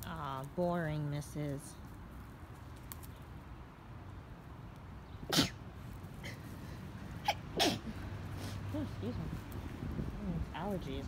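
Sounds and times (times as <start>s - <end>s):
person sneezing: 5.3s - 5.6s, 7.2s - 7.9s.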